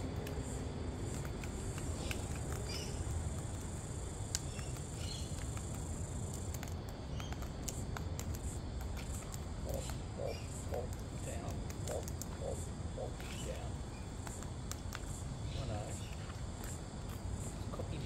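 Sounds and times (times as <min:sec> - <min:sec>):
birds feeding clicks and taps: 0:00.0 - 0:18.0
high insect drone: 0:00.0 - 0:18.0.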